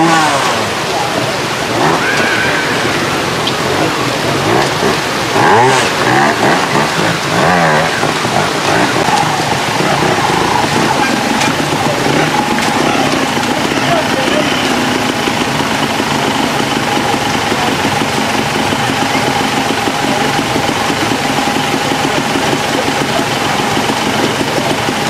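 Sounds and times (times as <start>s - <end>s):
constant rushing hiss: 0.0s - 25.0s
motorcycle engines revving: 0.0s - 25.0s.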